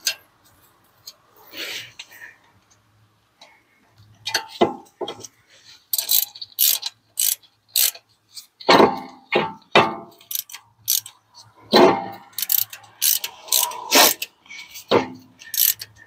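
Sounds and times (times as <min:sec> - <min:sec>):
hand ratchet clicking: 0:05.9 - 0:08.0, 0:10.2 - 0:11.2, 0:12.3 - 0:16.0.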